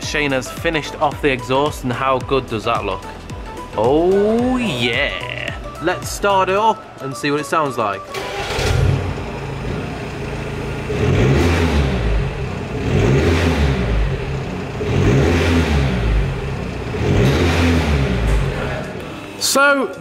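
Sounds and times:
diesel car engine revving: 8.1s - 19.4s.

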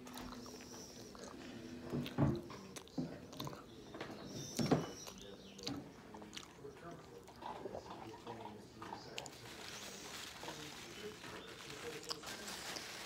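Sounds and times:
person chewing food: 0.0s - 9.9s.

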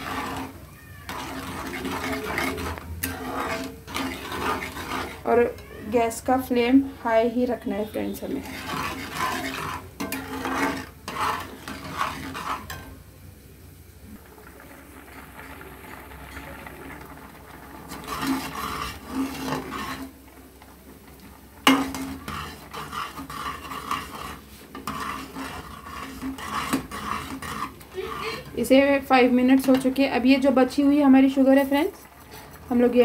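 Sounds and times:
metal spatula scraping a pot: 0.0s - 13.0s, 17.8s - 33.0s.

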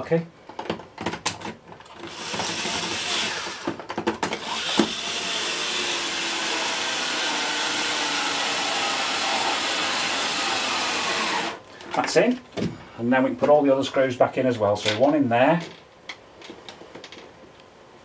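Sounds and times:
electric screwdriver whirring: 1.9s - 3.8s, 4.4s - 11.6s.

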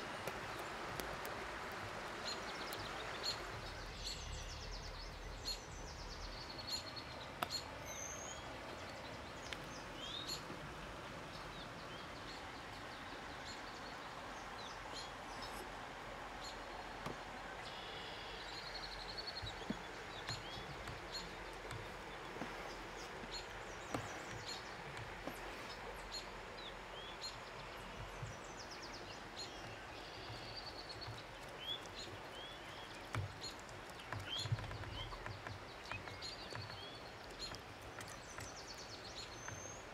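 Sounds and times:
steady outdoor hiss: 0.0s - 39.9s
wild birds chirping and trilling: 0.5s - 39.9s
soft knocks and taps: 19.3s - 25.9s, 32.9s - 38.6s.

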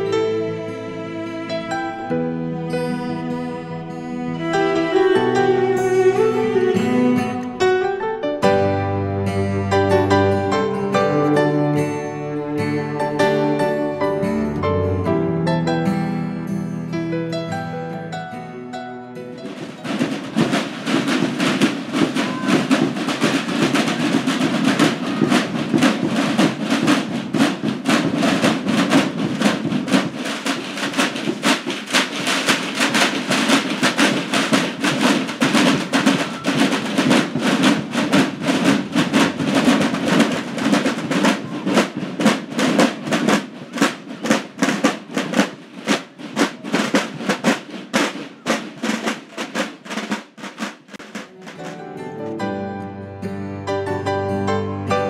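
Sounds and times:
drums beaten fast: 19.4s - 51.8s.

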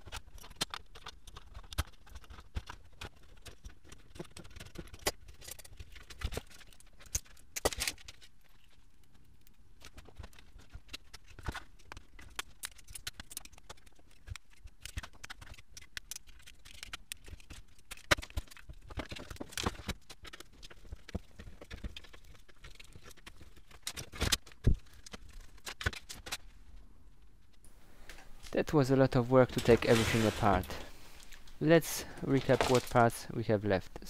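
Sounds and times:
metal and wires rattling: 28.0s - 33.3s.

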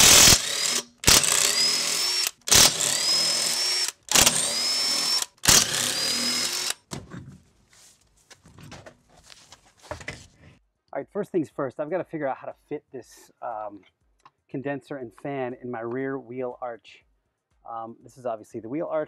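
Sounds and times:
impact wrench whining bursts: 0.0s - 6.9s
quiet handling sounds: 7.1s - 10.6s.

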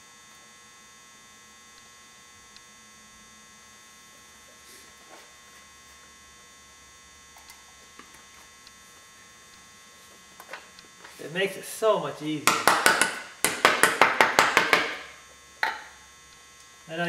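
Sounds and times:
faint electrical hum: 0.0s - 17.0s.

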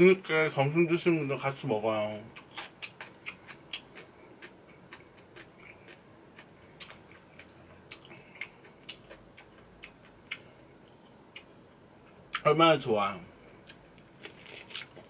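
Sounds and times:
person chewing food: 2.3s - 11.6s, 13.6s - 15.0s.

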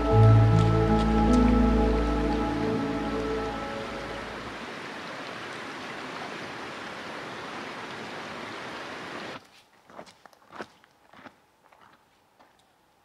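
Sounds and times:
footsteps on dirt trail: 0.0s - 2.5s, 9.4s - 12.6s
rocky creek rushing: 0.0s - 9.4s.

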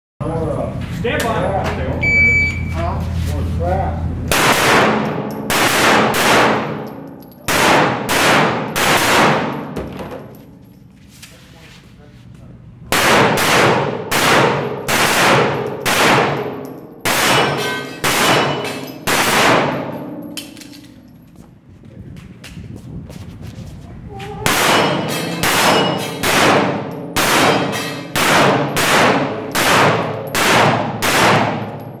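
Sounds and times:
pistol shots echoing indoors: 4.3s - 10.3s, 12.9s - 21.0s, 24.4s - 32.0s.

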